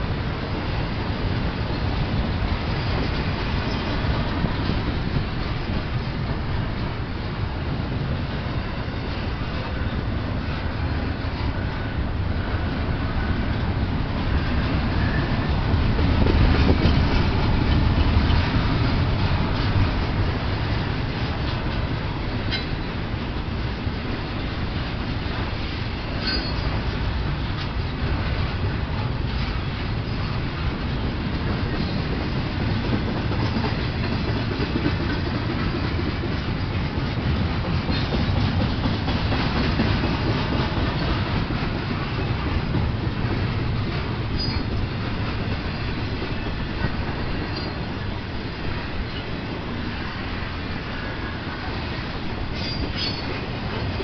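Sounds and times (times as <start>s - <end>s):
train wheels rumbling on rail: 0.0s - 54.0s
wheels clacking over rail joints: 8.4s - 54.0s
high-pitched wheel squeaks: 26.2s - 26.7s, 44.4s - 44.8s, 52.5s - 53.4s.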